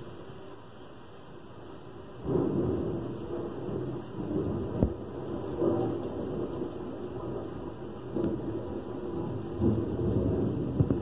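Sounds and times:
thunder rumbling: 2.2s - 11.0s.

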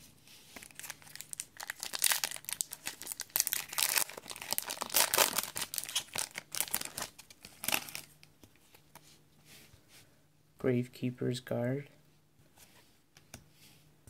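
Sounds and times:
foil wrapper crinkling: 0.6s - 8.1s.

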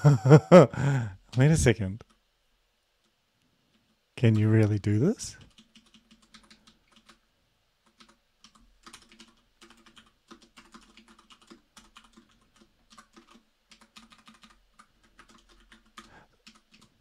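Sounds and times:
computer keyboard typing: 5.4s - 7.2s, 7.8s - 17.0s.

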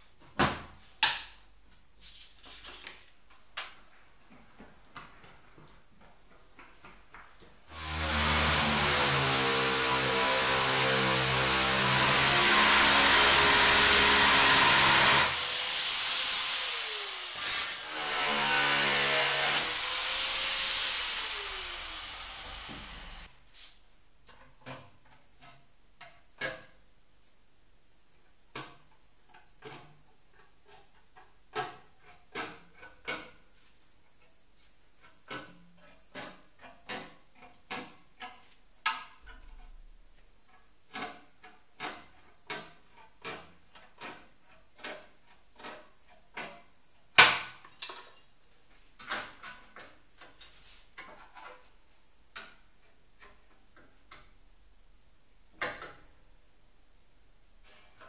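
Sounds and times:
electric metal shear cutting: 7.7s - 23.3s.

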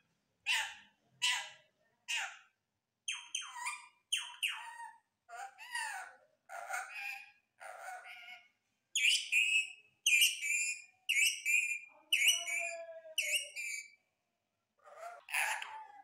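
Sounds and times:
high whistly bird calls: 9.0s - 14.0s
parakeet mimicking speech: 11.5s - 13.9s, 14.8s - 16.0s.

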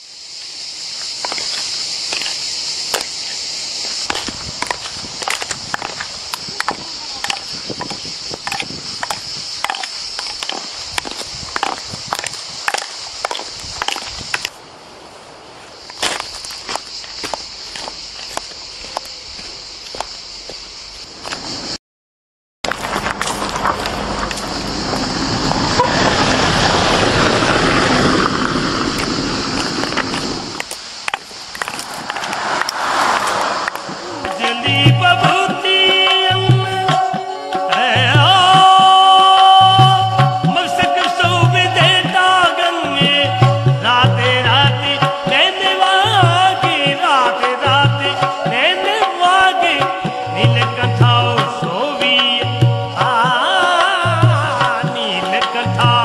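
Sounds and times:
cicadas buzzing: 0.0s - 21.8s, 22.7s - 56.0s
car engine and road noise: 0.9s - 21.8s, 22.6s - 35.5s
wooden clogs clacking on dirt: 1.2s - 3.2s, 4.0s - 14.6s, 29.0s - 32.8s.

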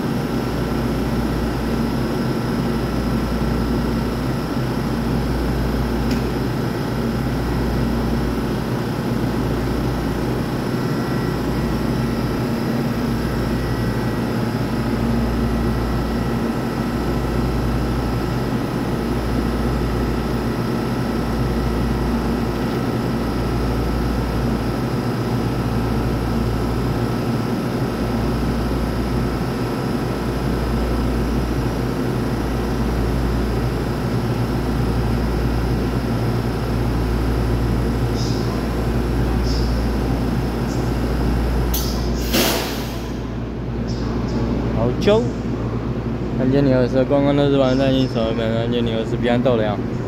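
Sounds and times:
electric train humming: 5.5s - 25.4s.

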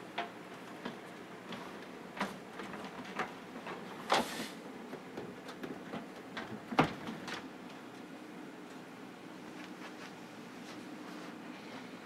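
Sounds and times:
computer fans humming: 0.0s - 12.0s.

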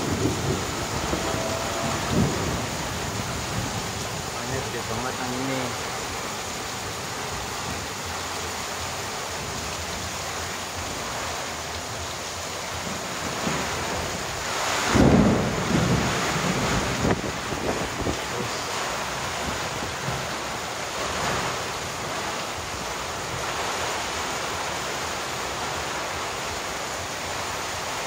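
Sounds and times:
thunder rumbling: 0.0s - 5.1s, 12.7s - 23.7s
heavy rain pouring: 0.0s - 28.0s.

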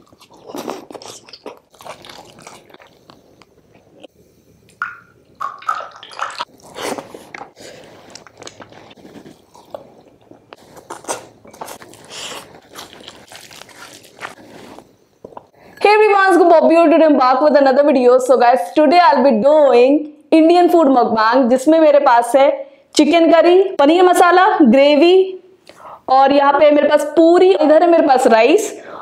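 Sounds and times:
wet chewing: 0.0s - 4.1s, 5.4s - 15.5s
lip smacks: 6.1s - 14.4s
crisp bites: 10.5s - 14.9s.

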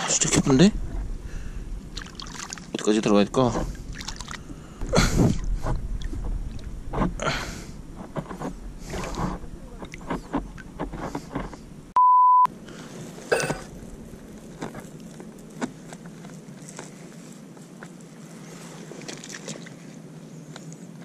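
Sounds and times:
water splashing from wading: 1.2s - 11.2s, 18.6s - 19.8s
beep tone: 12.0s - 12.5s.

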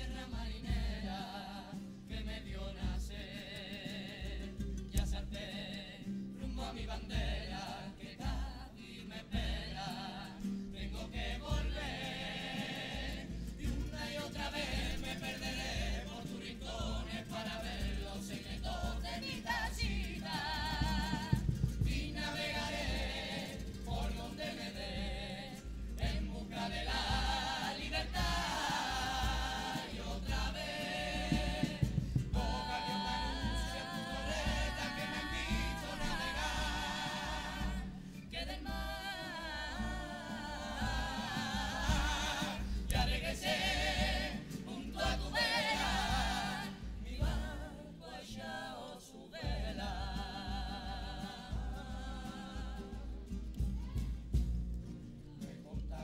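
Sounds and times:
young voices singing together: 0.0s - 54.5s
steady low beat: 16.8s - 47.7s.

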